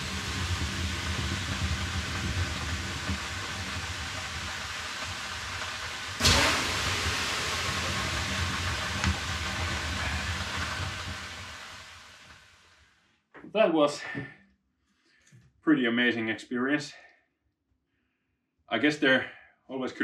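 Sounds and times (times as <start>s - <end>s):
steady low rumble: 0.0s - 12.4s
steam hissing off hot stones: 0.0s - 12.8s.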